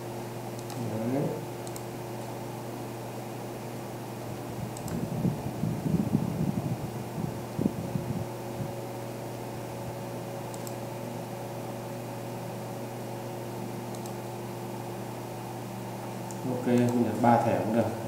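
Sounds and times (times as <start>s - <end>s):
computer room hum and fan hiss: 0.0s - 18.0s
mouse clicks: 0.6s - 0.8s, 1.6s - 1.9s, 4.8s - 5.0s, 10.5s - 10.8s, 13.9s - 14.2s.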